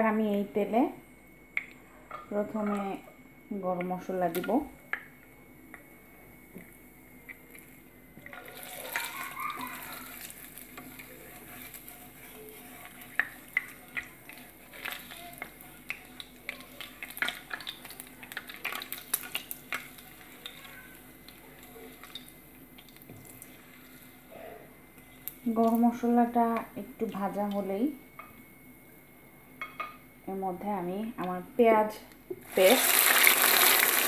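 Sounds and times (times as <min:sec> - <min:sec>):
spices sizzling in hot oil: 0:07.5 - 0:24.3, 0:25.0 - 0:27.9, 0:32.4 - 0:34.0
spatula knocking and scraping pan: 0:08.6 - 0:16.6.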